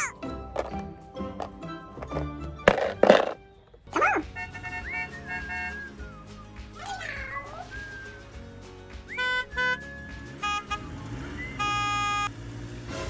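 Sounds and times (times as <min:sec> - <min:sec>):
background music: 0:00.0 - 0:12.2
kitten mewing: 0:06.8 - 0:07.7.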